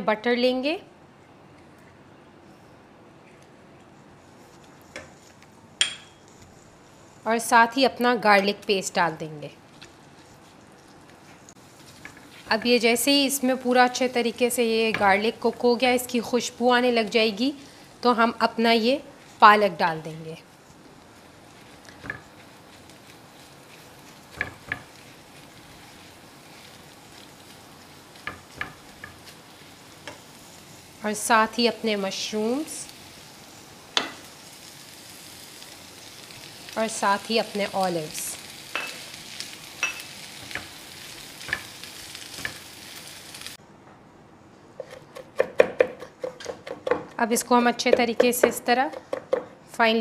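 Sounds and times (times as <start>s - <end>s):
spatula scraping and tapping: 3.8s - 6.8s, 9.7s - 12.8s, 20.6s - 26.0s, 26.6s - 29.4s, 30.0s - 30.3s, 44.8s - 47.2s, 47.8s - 49.5s
faint sizzling in a frying pan: 5.0s - 43.6s.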